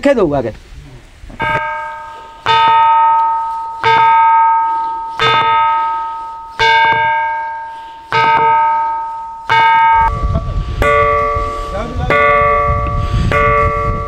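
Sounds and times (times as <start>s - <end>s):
rock struck ringing like bell: 1.4s - 14.0s.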